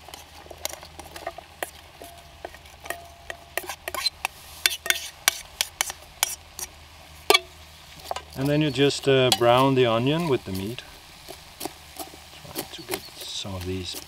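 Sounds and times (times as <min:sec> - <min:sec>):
utensil scraping a pan: 0:00.0 - 0:06.7
faint sizzle: 0:00.0 - 0:14.0.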